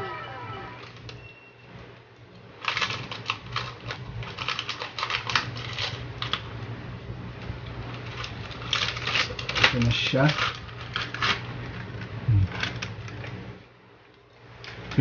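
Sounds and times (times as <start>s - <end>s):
plastic packet crinkling: 2.6s - 6.5s.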